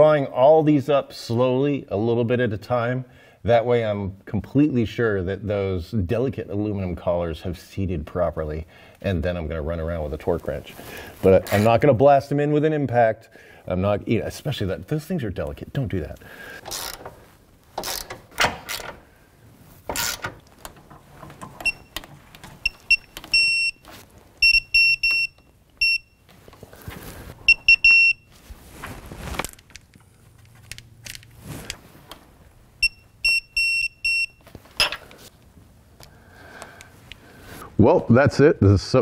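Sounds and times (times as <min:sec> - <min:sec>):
torque wrench beeping: 0:16.6 - 0:17.1, 0:21.6 - 0:26.2, 0:27.5 - 0:28.3, 0:32.8 - 0:35.0
ratchet clicks and knocks: 0:16.6 - 0:17.2, 0:17.8 - 0:19.0, 0:19.9 - 0:23.3.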